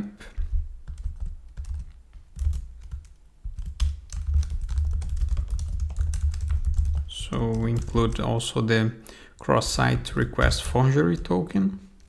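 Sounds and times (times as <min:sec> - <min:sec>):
typing on computer keyboard: 0:00.8 - 0:08.4.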